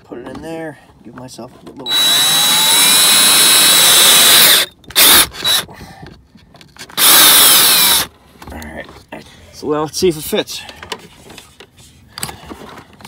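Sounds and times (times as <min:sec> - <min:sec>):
power drill whining: 0:01.8 - 0:05.7, 0:06.8 - 0:08.1.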